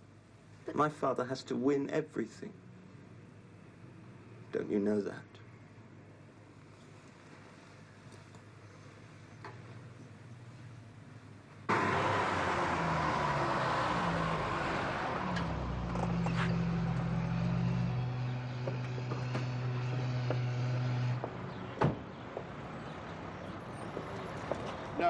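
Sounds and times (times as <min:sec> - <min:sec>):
street traffic: 0:00.0 - 0:25.0
car engine running: 0:15.4 - 0:21.3
car door slamming: 0:21.8 - 0:22.0.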